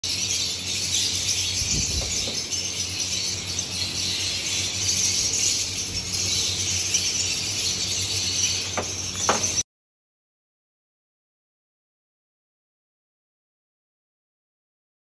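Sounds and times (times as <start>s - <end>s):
lovebirds chattering: 0.0s - 9.6s.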